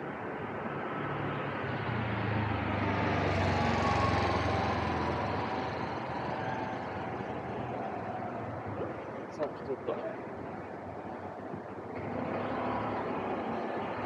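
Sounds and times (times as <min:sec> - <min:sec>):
motor scooter passing: 0:01.7 - 0:09.2, 0:11.9 - 0:14.0.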